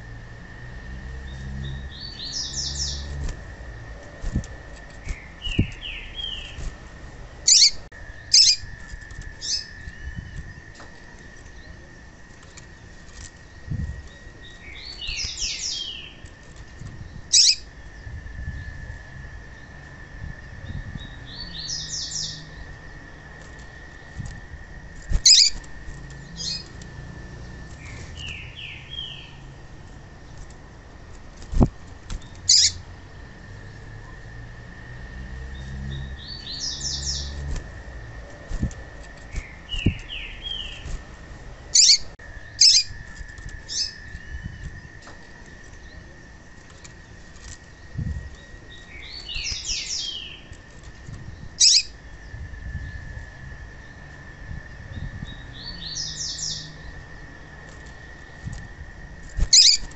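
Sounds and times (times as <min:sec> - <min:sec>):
steady high-pitched whine: 0:00.0 - 0:59.9
bird chirping: 0:01.2 - 0:03.3, 0:03.9 - 0:06.7, 0:07.4 - 0:12.8, 0:13.4 - 0:16.4, 0:17.0 - 0:18.8, 0:20.6 - 0:23.5, 0:25.1 - 0:29.5, 0:32.2 - 0:33.8, 0:35.4 - 0:37.6, 0:38.2 - 0:41.0, 0:41.6 - 0:47.0, 0:47.6 - 0:50.6, 0:51.2 - 0:53.0, 0:54.9 - 0:57.3, 0:59.3 - 0:59.9.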